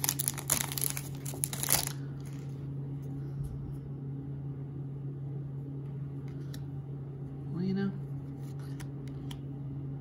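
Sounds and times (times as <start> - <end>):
foil wrapper crinkling: 0.0 - 2.4
steady low hum: 0.0 - 10.0.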